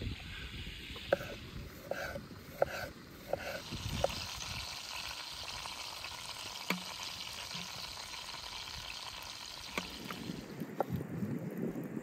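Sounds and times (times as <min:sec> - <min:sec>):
steaks sizzling in pan: 0:03.2 - 0:10.4.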